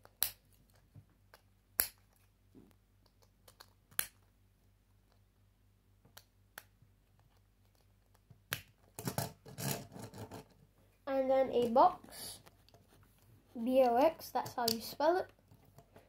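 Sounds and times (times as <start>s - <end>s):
plastic pieces snapping on: 0.0s - 2.2s, 7.6s - 9.3s
faint clicks of pieces handled: 0.0s - 5.3s, 6.0s - 10.7s.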